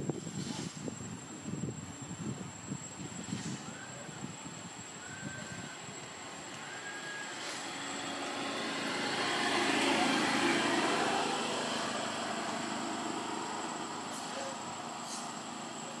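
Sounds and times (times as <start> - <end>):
distant engine passing: 5.1 - 16.0.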